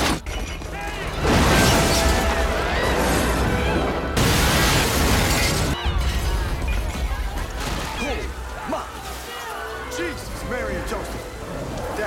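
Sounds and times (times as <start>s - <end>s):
loud crashing and shattering: 0.0s - 9.4s
film music: 0.7s - 12.0s.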